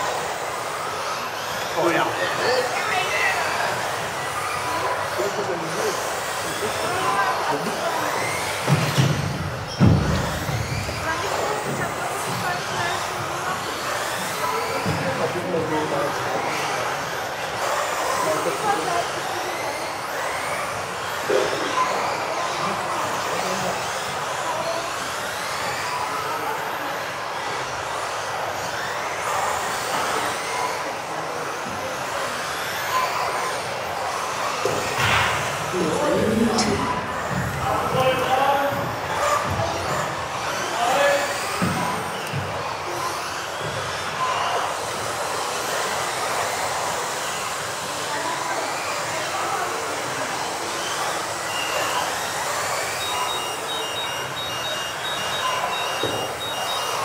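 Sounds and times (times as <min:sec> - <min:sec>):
motor and tyre noise: 0:00.0 - 0:57.0
rc car motors whining: 0:00.0 - 0:57.0
high electronic beep: 0:52.9 - 0:57.0.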